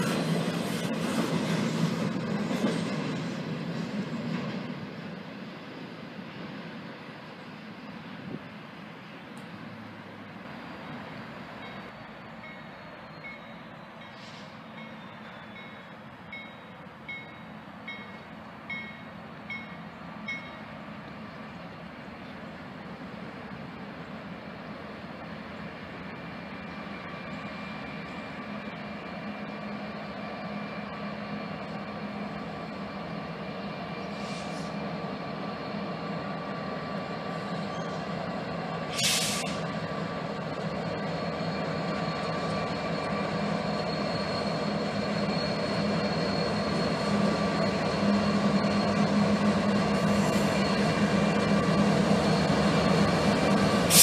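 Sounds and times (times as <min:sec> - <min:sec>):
diesel locomotive engine drone: 0:00.0 - 0:54.0
short sharp hiss: 0:14.2 - 0:14.6, 0:34.2 - 0:34.8, 0:38.9 - 0:39.6.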